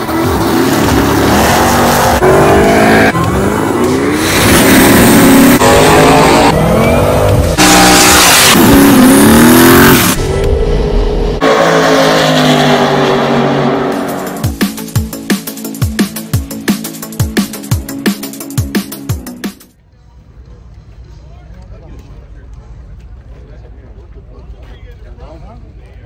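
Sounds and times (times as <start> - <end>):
race car engines revving: 0.0 - 14.5.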